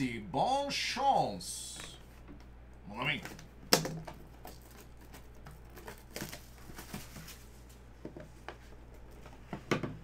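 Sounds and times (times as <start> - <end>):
plastic wrap crinkling: 4.4 - 7.6.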